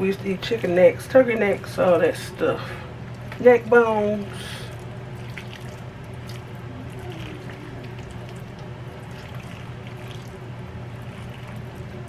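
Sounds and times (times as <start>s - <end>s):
steady low hum: 0.0s - 12.0s
thick filling squelching: 2.7s - 12.0s.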